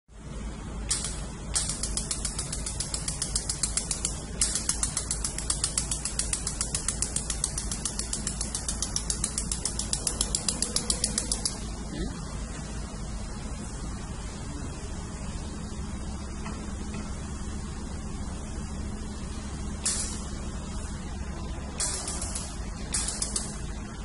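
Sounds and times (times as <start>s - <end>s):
machine low hum: 0.1s - 24.0s
laser welder ticking: 0.9s - 11.6s, 19.8s - 20.3s, 21.8s - 23.8s.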